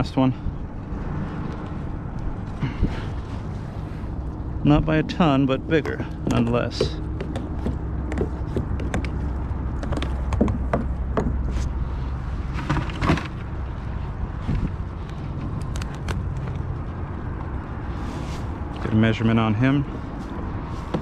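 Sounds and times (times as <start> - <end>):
steady low rumble: 0.0 - 21.0
knocks and clatter on kayak: 5.8 - 9.2, 9.8 - 11.4, 12.6 - 13.4.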